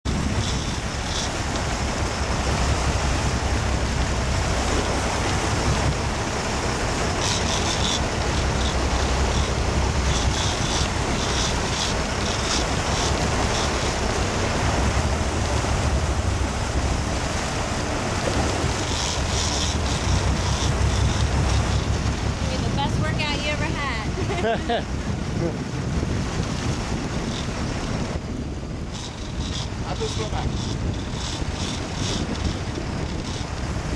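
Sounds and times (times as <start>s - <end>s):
rushing water from wake: 0.0s - 33.9s
wind buffeting microphone: 0.0s - 33.9s
low engine rumble: 0.1s - 26.1s.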